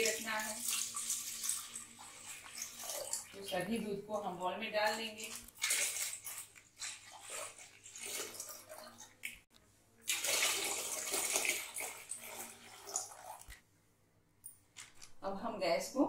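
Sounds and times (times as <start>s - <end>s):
milk pouring into pot: 5.1s - 9.4s, 10.0s - 13.6s.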